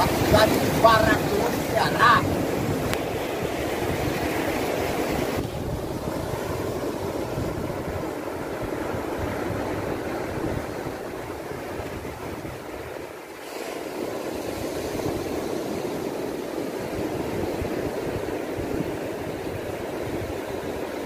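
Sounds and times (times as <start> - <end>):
surf breaking on beach: 0.0 - 21.0
wind buffeting microphone: 0.0 - 21.0.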